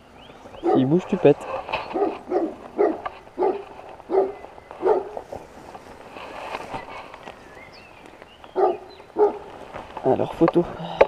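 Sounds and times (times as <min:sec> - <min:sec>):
dog barking: 0:00.6 - 0:01.0, 0:01.9 - 0:05.2, 0:08.6 - 0:09.5.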